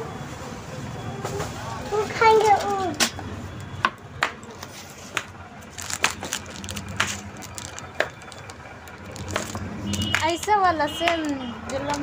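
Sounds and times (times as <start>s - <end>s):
boxes clicking and knocking: 3.8s - 12.0s.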